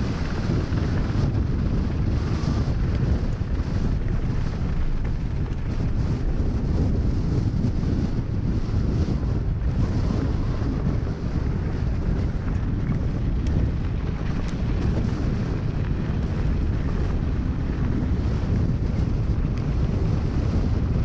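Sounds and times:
bike tyres rolling over gravel: 0:00.0 - 0:21.0
wind rushing over microphone: 0:00.0 - 0:21.0.

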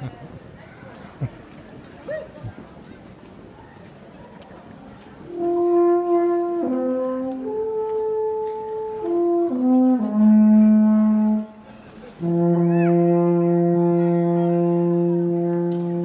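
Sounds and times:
alphorn playing held notes: 0:05.3 - 0:11.6, 0:12.2 - 0:16.0.

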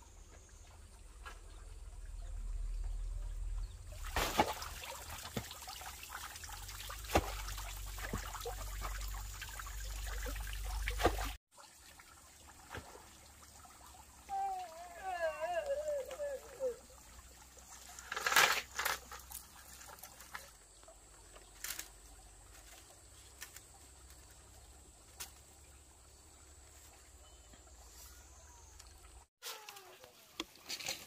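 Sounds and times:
water trickling: 0:00.4 - 0:27.9.

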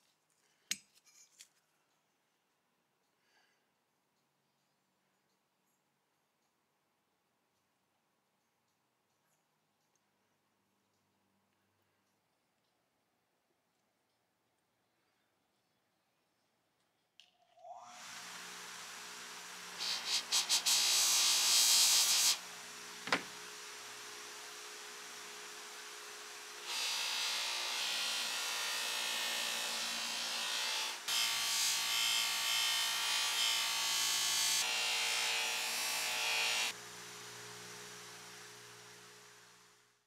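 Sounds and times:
bench grinder humming: 0:17.8 - 0:39.9
metal grinding scratchy hiss: 0:18.0 - 0:32.0.

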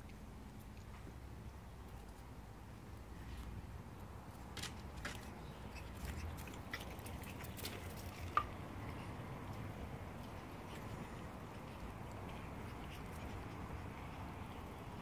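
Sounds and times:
puppy paws tapping on concrete: 0:04.4 - 0:08.6.

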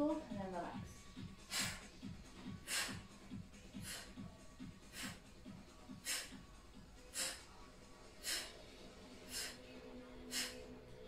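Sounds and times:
faint background music: 0:00.0 - 0:11.0
forceful hissing breaths out: 0:01.4 - 0:04.2, 0:04.8 - 0:05.3, 0:05.9 - 0:06.4, 0:07.0 - 0:09.6, 0:10.2 - 0:10.8.

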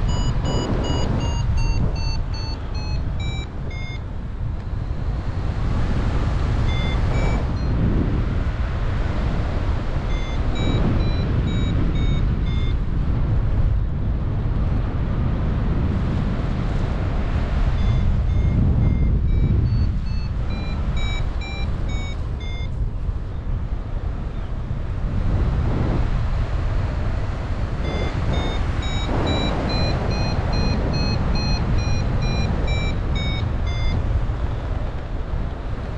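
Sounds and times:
variometer beeping: 0:00.0 - 0:08.2, 0:09.2 - 0:13.1, 0:17.4 - 0:22.9, 0:27.0 - 0:35.9
wind buffeting microphone: 0:00.0 - 0:35.9.

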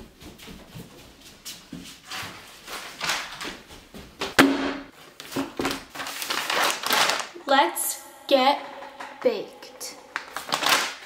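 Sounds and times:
papers rustling: 0:05.0 - 0:07.4, 0:10.2 - 0:11.0.

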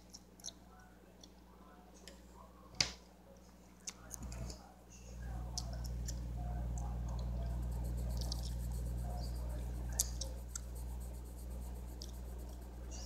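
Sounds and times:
low hum: 0:05.0 - 0:13.0
colored pencil scratching paper: 0:07.0 - 0:13.0.

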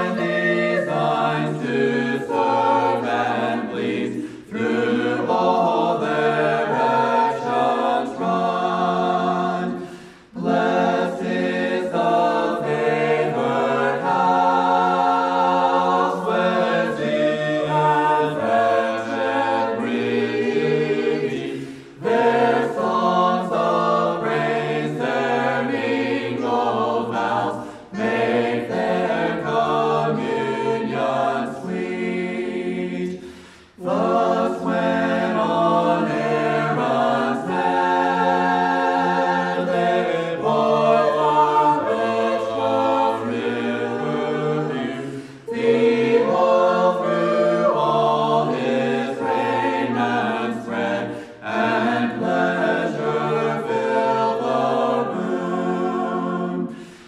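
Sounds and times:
choir singing a hymn a cappella: 0:00.0 - 0:57.0
singers breathing: 0:04.1 - 0:04.5, 0:09.7 - 0:10.4, 0:21.4 - 0:22.0, 0:27.6 - 0:28.0, 0:33.0 - 0:33.8, 0:45.0 - 0:45.5, 0:51.0 - 0:51.4, 0:56.7 - 0:57.0.

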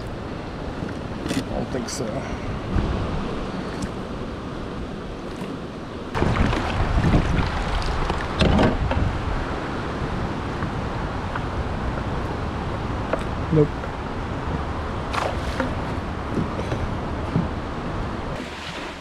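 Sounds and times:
river water rushing: 0:02.4 - 0:19.0
water splashes: 0:05.2 - 0:09.1, 0:14.9 - 0:16.9, 0:18.3 - 0:19.0.

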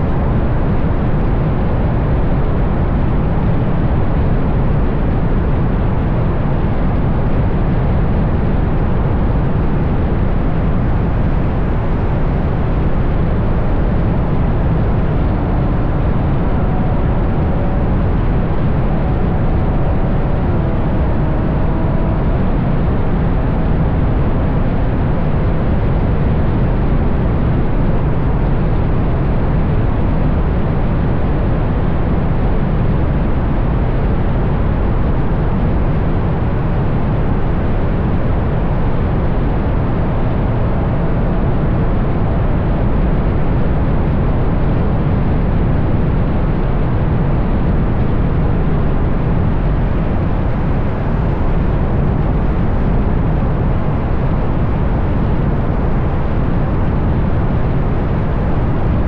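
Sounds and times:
wind buffeting: 0:09.0 - 0:26.4.

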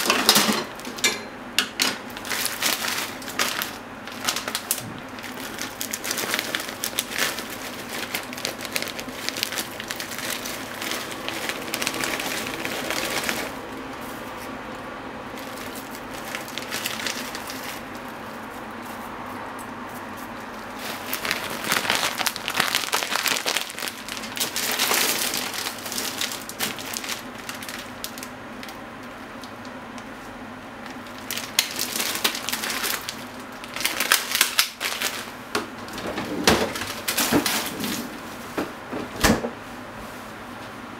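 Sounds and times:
packaging crinkling by hand: 0:01.7 - 0:38.2.

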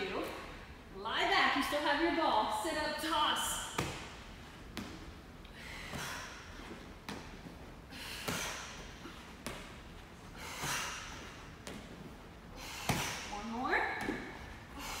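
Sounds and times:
medicine ball slapping into hands: 0:03.7 - 0:05.1, 0:12.8 - 0:13.3.

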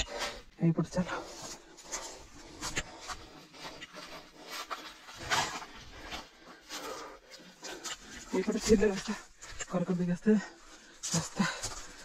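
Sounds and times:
person breathing: 0:01.1 - 0:08.3.

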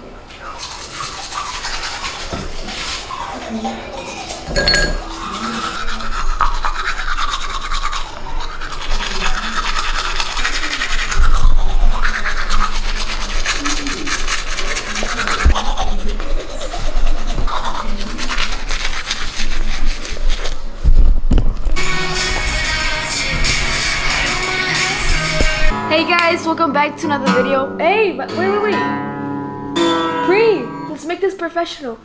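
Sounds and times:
toothbrush scrubbing teeth: 0:00.3 - 0:20.8, 0:21.8 - 0:25.7.

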